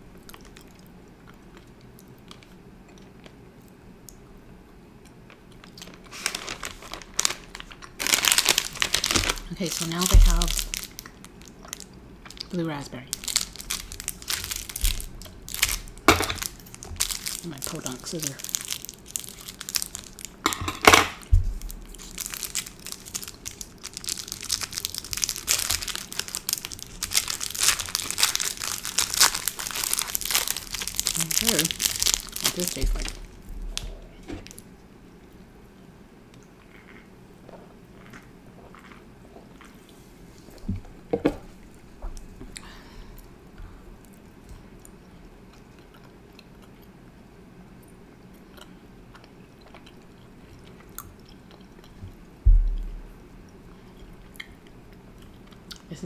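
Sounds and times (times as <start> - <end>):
crackly sounds: 0.0 - 56.0
chewing candy: 0.1 - 4.2, 5.0 - 20.4, 21.9 - 34.6, 36.3 - 40.6, 44.0 - 52.2, 53.5 - 56.0
plastic wrapper crinkling: 5.6 - 20.5, 21.1 - 34.6
thump: 52.5 - 53.0.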